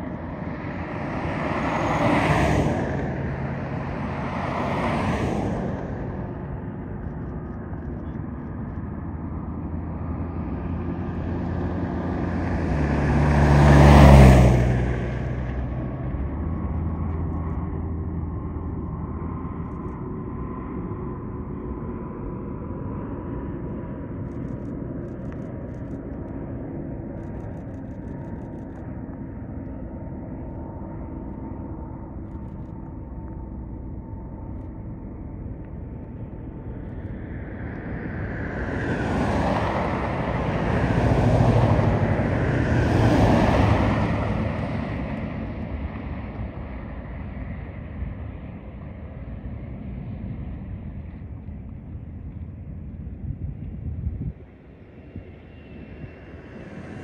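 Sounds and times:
jet engine rumble and whine: 0.0 - 13.2, 14.8 - 57.0.

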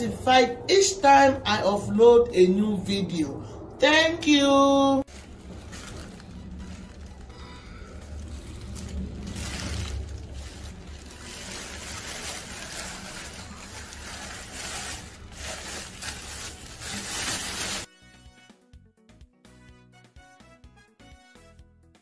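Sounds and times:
plastic bags rustling: 5.0 - 17.9
soft music: 8.4 - 22.0.

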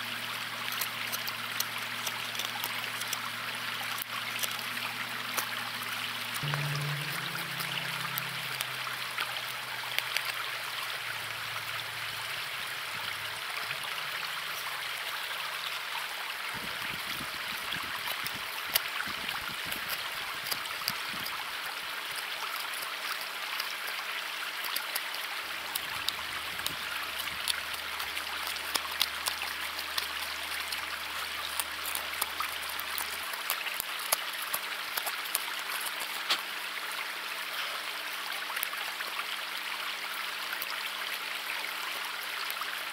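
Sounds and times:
faint low sustained tones: 4.8 - 14.6.

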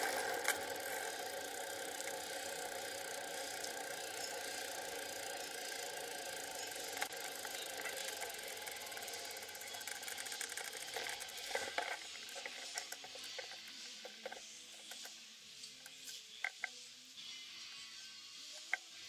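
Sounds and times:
bicycle freewheel ticking: 0.0 - 15.2.

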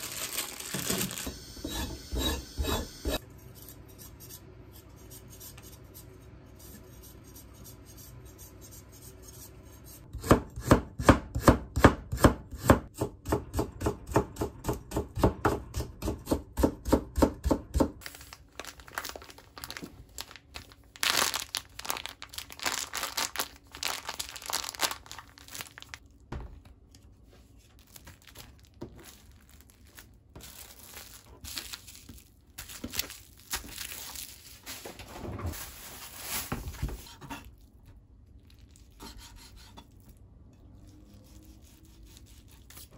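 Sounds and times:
plastic bag rustling and crinkling: 0.0 - 1.3, 18.0 - 26.2, 27.3 - 37.1
knife chopping on cutting board: 10.1 - 18.0.

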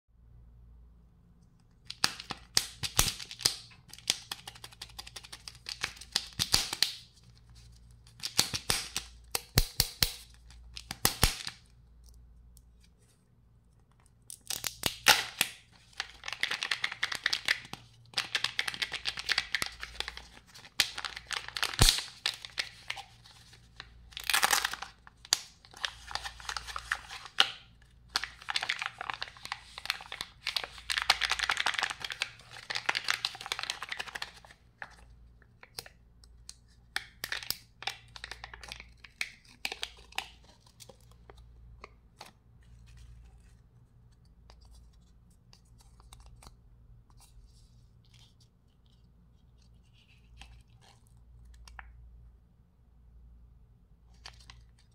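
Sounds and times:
plastic wrapper crinkling: 14.2 - 35.9, 36.9 - 44.8.

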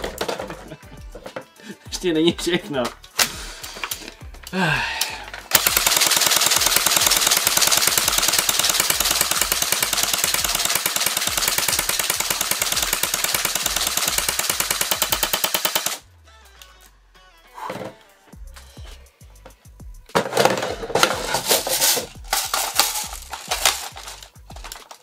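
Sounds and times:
airsoft gun rapid firing: 5.5 - 16.0, 22.3 - 24.8.

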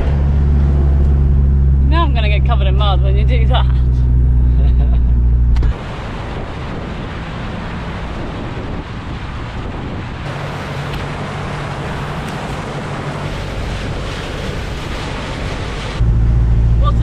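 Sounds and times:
engine low hum: 0.0 - 17.0
tyres churning water and mud: 0.0 - 17.0
wind buffeting microphone: 0.0 - 17.0.

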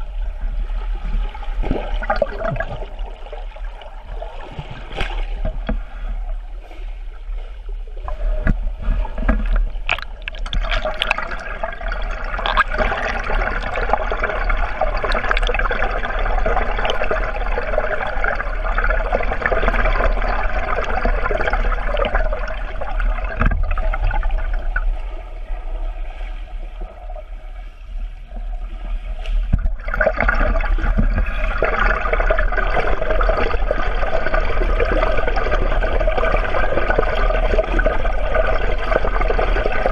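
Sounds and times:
low underwater hum: 0.0 - 39.9
underwater swimming water rushing: 0.0 - 39.9
knocks underwater: 4.4 - 6.1, 8.0 - 11.6, 12.3 - 14.0, 23.2 - 24.9, 29.2 - 33.6.

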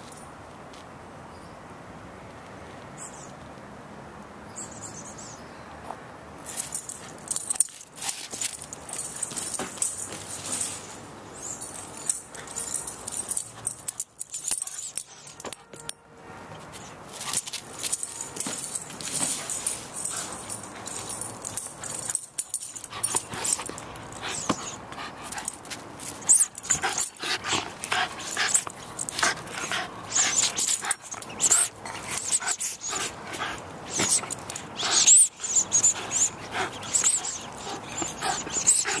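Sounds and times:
clicks and scuffs: 5.8 - 39.0
puppy whimpering: 26.2 - 39.0.

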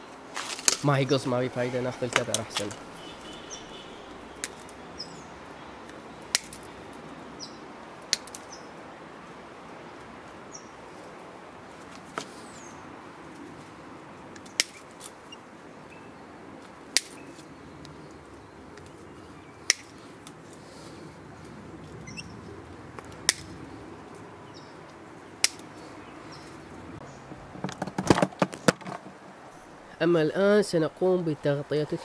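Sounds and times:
wire snapping clicks: 5.9 - 6.7, 22.9 - 23.5.

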